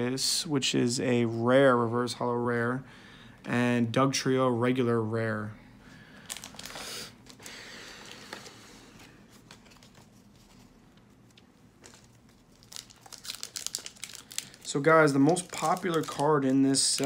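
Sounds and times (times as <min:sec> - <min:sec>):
cards rustling and sliding: 0:06.4 - 0:17.0
light crinkling: 0:08.1 - 0:17.0.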